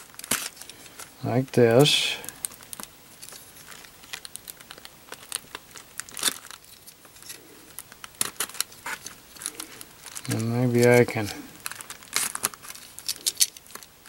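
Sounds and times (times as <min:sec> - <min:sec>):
plastic film crinkling: 0:00.0 - 0:14.0
knife cutting plastic film: 0:04.0 - 0:13.9.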